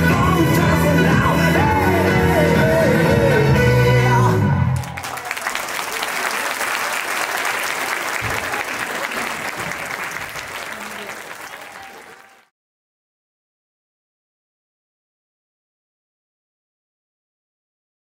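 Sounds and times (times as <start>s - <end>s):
song music: 0.0s - 4.8s
audience clapping and cheering: 4.6s - 12.5s.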